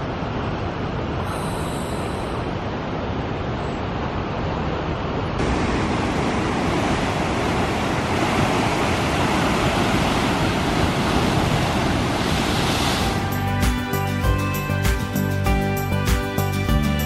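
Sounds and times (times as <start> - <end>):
ocean surf breaking over rocks: 0.0 - 13.3.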